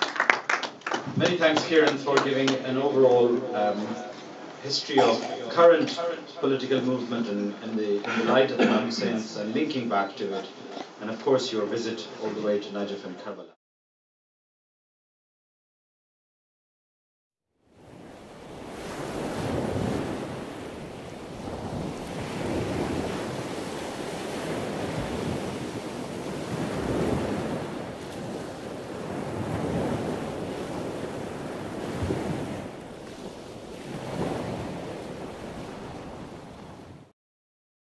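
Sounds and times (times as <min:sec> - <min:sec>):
ocean waves washing in: 0:17.6 - 0:37.1.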